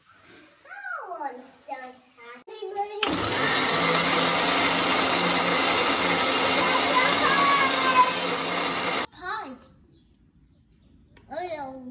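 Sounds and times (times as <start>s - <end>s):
mixer grinder motor running: 3.0s - 9.1s.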